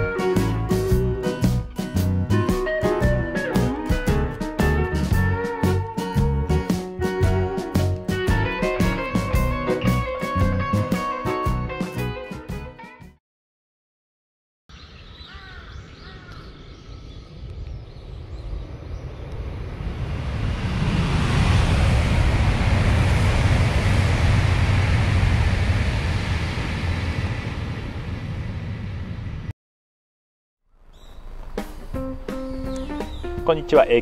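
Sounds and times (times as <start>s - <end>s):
short bird calls: 14.7s - 17.2s, 30.9s - 33.4s
train passing at speed: 17.3s - 29.5s.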